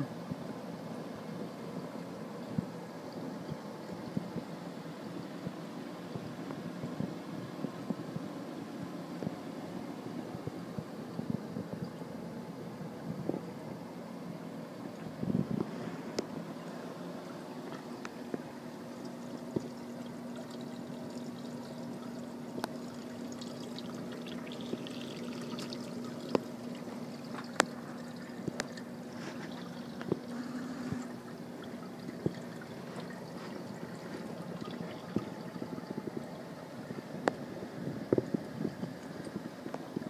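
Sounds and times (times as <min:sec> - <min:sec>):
steady low hum: 0:00.0 - 0:40.0
water trickling and pouring: 0:14.7 - 0:40.0.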